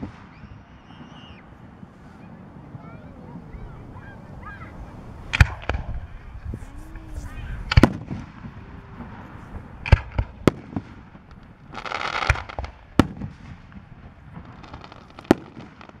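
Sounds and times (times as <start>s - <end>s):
fireworks bursting with sharp bangs: 0.0s - 16.0s
dense hissing: 1.8s - 12.3s.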